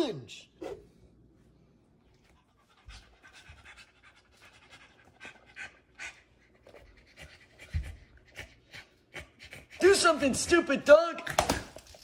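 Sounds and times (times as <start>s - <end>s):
dog panting: 2.1s - 10.5s.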